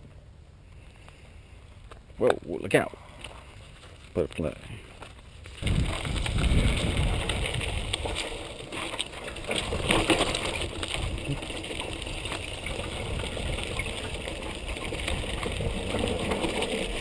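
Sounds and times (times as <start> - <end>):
bike tyres on dirt and rock: 0.0 - 17.0
bike rattles and knocks: 3.7 - 17.0
wind rumble on microphone: 5.5 - 8.6, 9.4 - 17.0.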